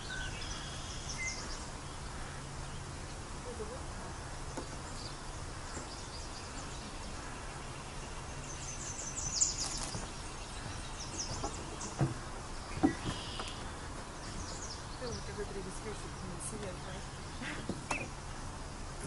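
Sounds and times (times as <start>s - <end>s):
songbirds singing: 0.0s - 19.0s
steady outdoor hiss: 0.0s - 19.0s
short dull knocks: 11.1s - 13.8s.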